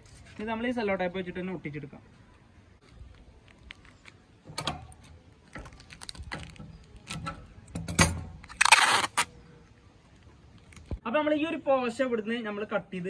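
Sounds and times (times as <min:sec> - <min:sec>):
plastic sheet crinkling: 0:05.5 - 0:07.0
tape ripping off roll: 0:08.4 - 0:09.3.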